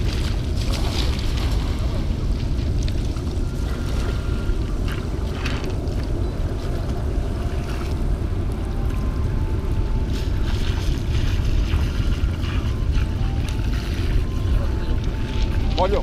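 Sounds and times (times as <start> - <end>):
hissing water splashes: 0.0 - 16.0
wind buffeting microphone: 0.0 - 16.0.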